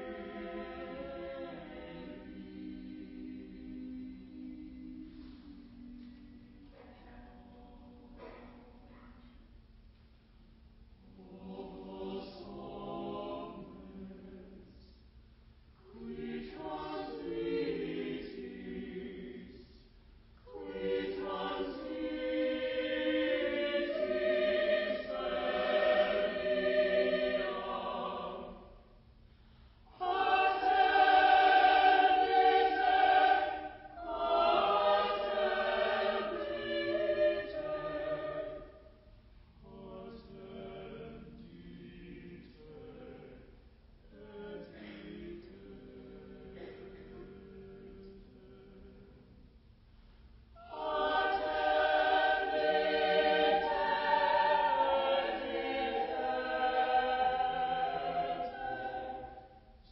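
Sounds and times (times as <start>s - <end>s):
unaccompanied hymn singing: 0.0s - 9.0s, 11.0s - 15.0s, 15.8s - 29.0s, 29.8s - 49.6s, 50.6s - 59.9s.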